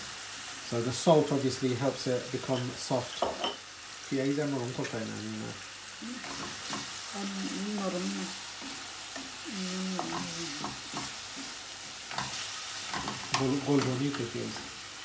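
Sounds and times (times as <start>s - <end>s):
onions sizzling in oil: 0.0s - 15.0s
spatula scraping and tapping pan: 6.2s - 6.9s, 10.0s - 14.3s.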